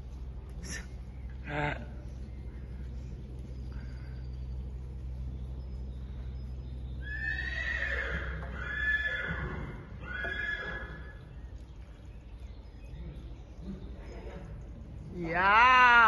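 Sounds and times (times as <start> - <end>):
horse neighing: 7.0 - 11.2.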